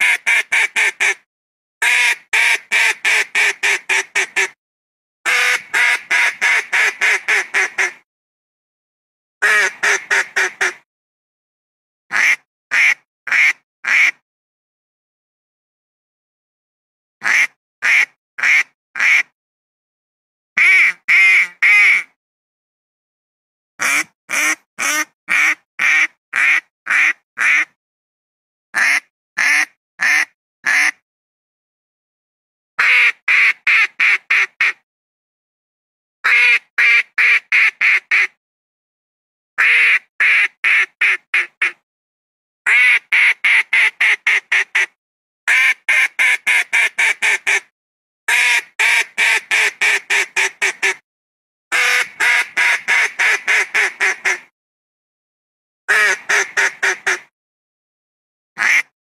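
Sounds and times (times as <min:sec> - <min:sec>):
duck calls: 0:01.8 - 0:04.6, 0:05.3 - 0:08.0, 0:09.4 - 0:10.8, 0:12.1 - 0:14.2, 0:17.2 - 0:19.3, 0:23.8 - 0:27.7, 0:28.8 - 0:31.0, 0:32.8 - 0:34.8, 0:36.2 - 0:38.3, 0:39.6 - 0:41.8, 0:42.7 - 0:44.9, 0:48.3 - 0:51.0, 0:51.7 - 0:54.4, 0:55.9 - 0:57.3, 0:58.6 - 0:58.9.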